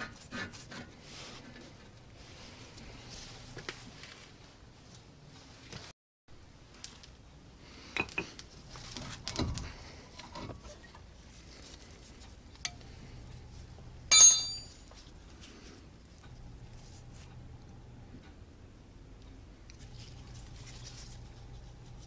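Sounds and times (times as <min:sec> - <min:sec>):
ringing metallic clink: 0:14.1 - 0:14.9.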